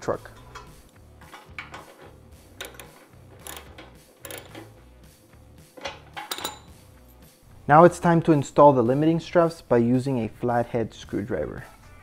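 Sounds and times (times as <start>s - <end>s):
background music: 0.0s - 12.0s
hand ratchet clicking: 0.4s - 4.9s.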